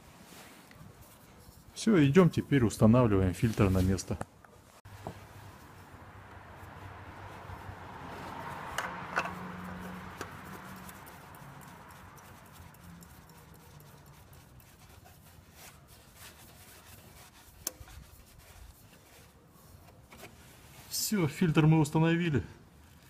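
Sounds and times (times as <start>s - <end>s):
light clicks and scrapes: 8.2s - 21.0s.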